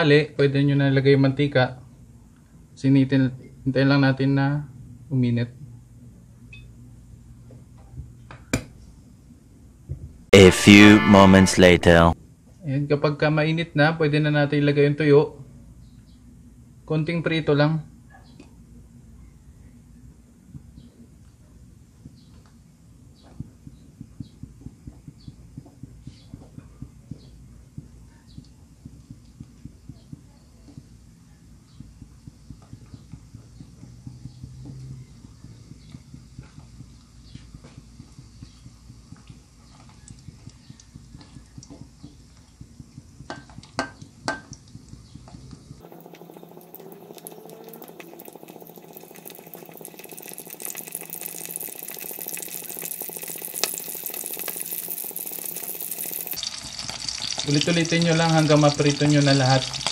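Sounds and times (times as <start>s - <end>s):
fish sizzling in oil: 37.8s - 59.9s.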